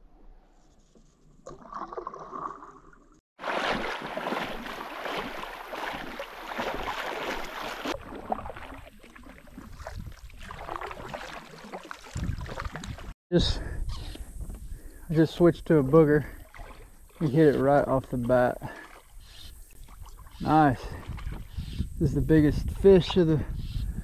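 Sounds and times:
water rushing around kayak: 3.4s - 13.2s, 16.0s - 21.8s.

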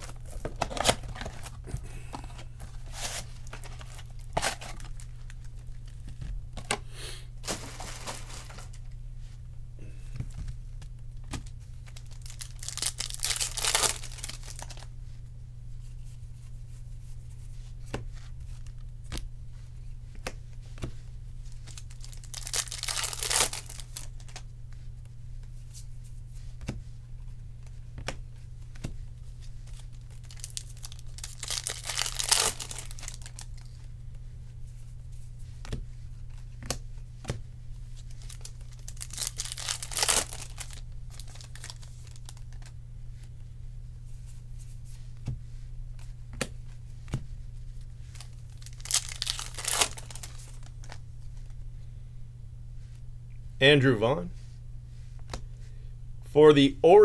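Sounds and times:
foil wrappers tearing: 0.0s - 1.6s, 2.4s - 6.0s, 7.4s - 8.8s, 11.8s - 14.9s, 21.6s - 24.4s, 29.6s - 33.8s, 38.0s - 42.7s, 48.1s - 51.0s
steady low hum: 0.0s - 57.0s.

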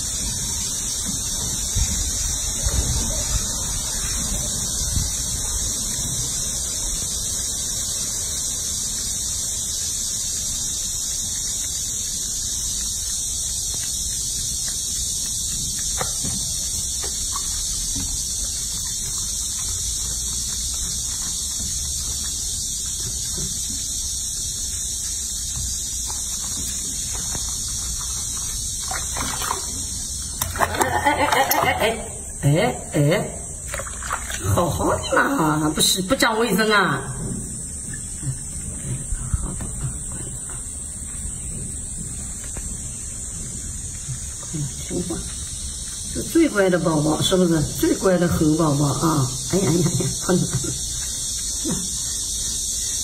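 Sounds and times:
wet rubbing: 0.0s - 32.4s, 33.5s - 35.3s
steady high-pitched hiss: 0.0s - 53.0s
water sloshing: 25.7s - 32.4s, 33.5s - 38.8s.

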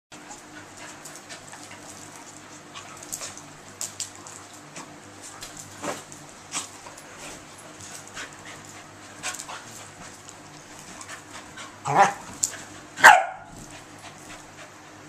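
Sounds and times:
dogs scuffling: 0.2s - 14.6s
dog growling: 11.8s - 12.2s.

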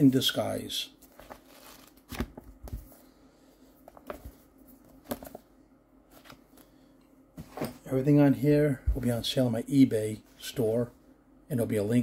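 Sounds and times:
paper rustling: 1.0s - 3.0s.

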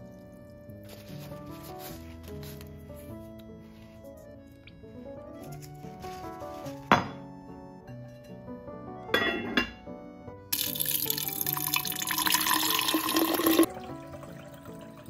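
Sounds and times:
water pouring into pitcher: 10.5s - 15.0s.

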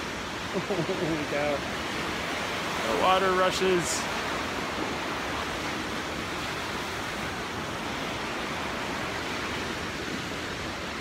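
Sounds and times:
river rapids rushing: 0.0s - 11.0s.

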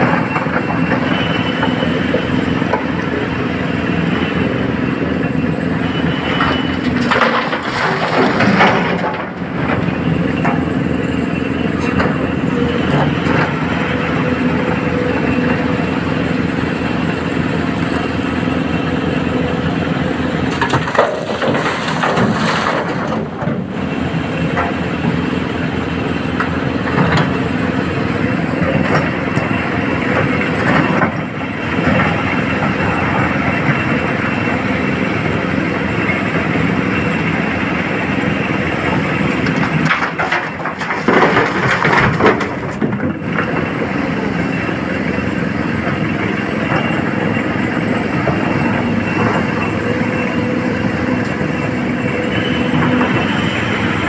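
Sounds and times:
excavator diesel engine running: 0.0s - 54.0s
rocks crashing into truck bed: 39.8s - 43.0s.

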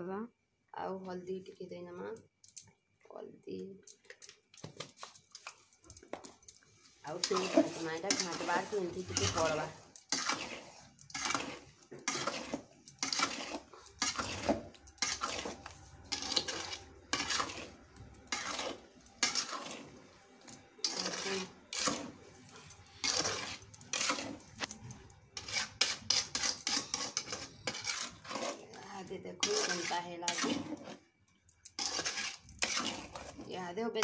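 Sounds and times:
metal spoon scraping steel pan: 7.0s - 31.1s, 31.7s - 34.0s.

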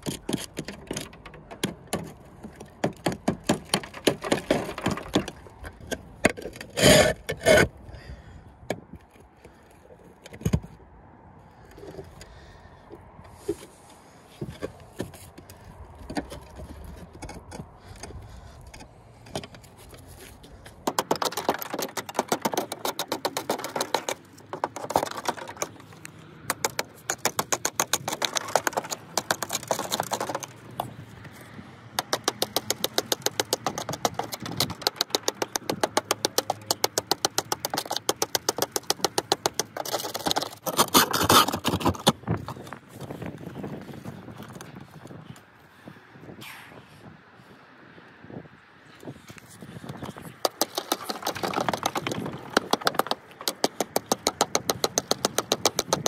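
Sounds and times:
hand tool scraping mortar: 0.0s - 7.8s, 16.0s - 43.7s, 49.4s - 56.0s.

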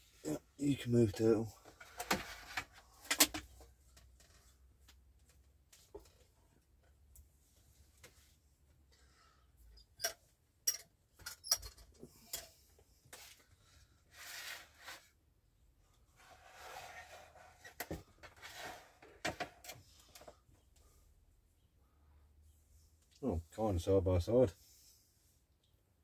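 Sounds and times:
trays scraping as slid: 16.2s - 17.6s, 18.3s - 19.0s.

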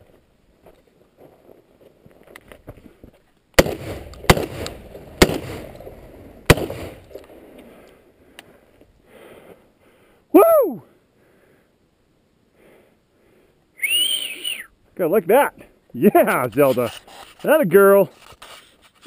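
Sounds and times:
shotgun shots with echo: 3.6s - 5.8s, 6.5s - 7.0s
faint clicks and scuffs: 16.2s - 19.0s.

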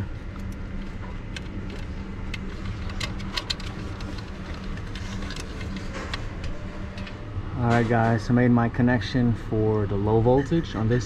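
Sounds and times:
wire and metal clicks and rustles: 0.0s - 8.2s
low mechanical hum: 0.0s - 11.0s.

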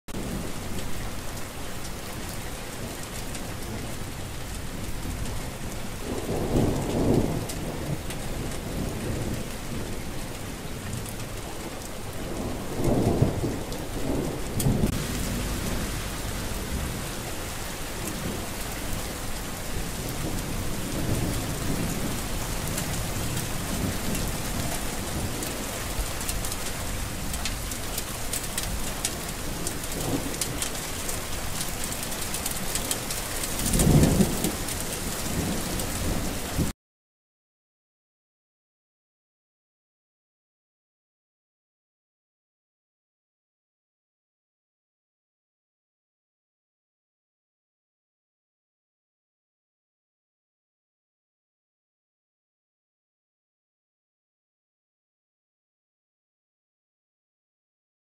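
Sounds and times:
rain falling: 0.1s - 36.8s
low rumbles: 14.3s - 20.4s.

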